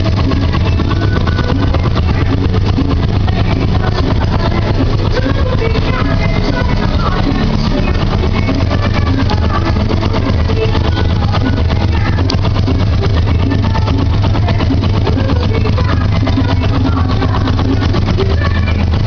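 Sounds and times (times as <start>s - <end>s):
motorcycle engine idling: 0.0s - 19.0s
music playing: 0.0s - 19.0s.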